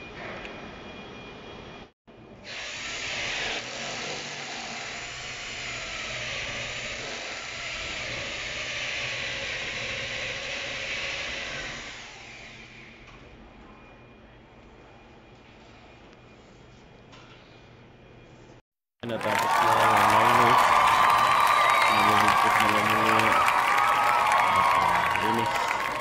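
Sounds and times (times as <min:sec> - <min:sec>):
drill hole saw whirring grind: 0:02.4 - 0:13.0.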